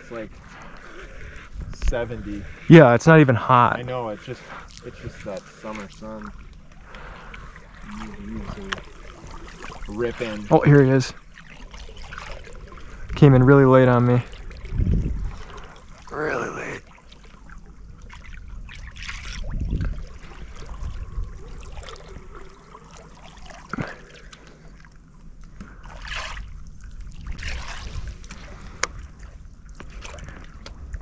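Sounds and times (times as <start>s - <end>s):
water splashing against boat: 0.0s - 31.0s
wind rumble on microphone: 1.1s - 2.7s, 12.6s - 15.7s, 17.8s - 22.6s, 26.3s - 31.0s.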